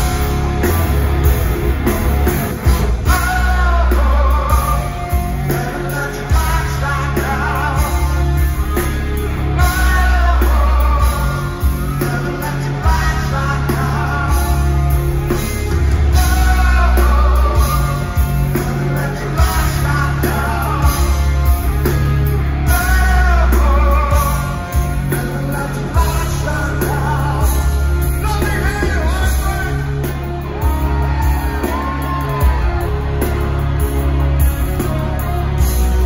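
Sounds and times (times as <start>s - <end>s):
live rock band playing: 0.0s - 36.0s
man singing: 3.0s - 21.6s, 22.6s - 32.9s.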